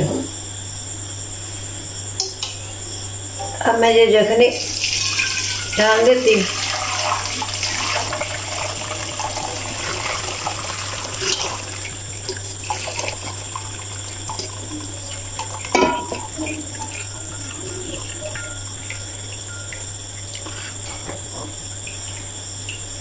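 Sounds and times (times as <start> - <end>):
liquid pouring and splashing: 4.6 - 22.3.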